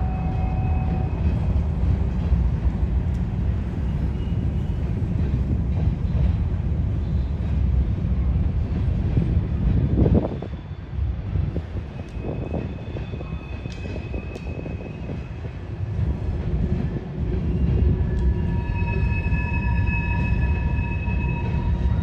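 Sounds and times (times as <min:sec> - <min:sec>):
train rumbling by: 0:00.0 - 0:22.0
high-pitched wheel squeal: 0:17.5 - 0:22.0.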